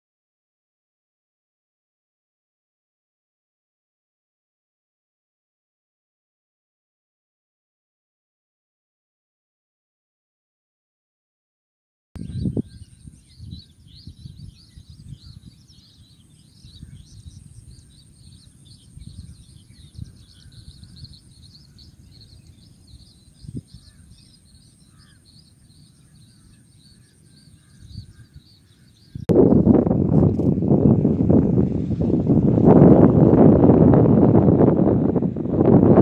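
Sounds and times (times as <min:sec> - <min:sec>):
wind gusting on microphone: 0:12.2 - 0:36.0.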